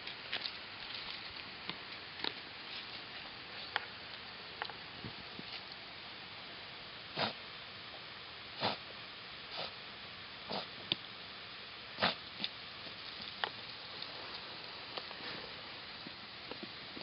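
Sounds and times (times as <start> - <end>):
dog sniffing: 9.5 - 9.8.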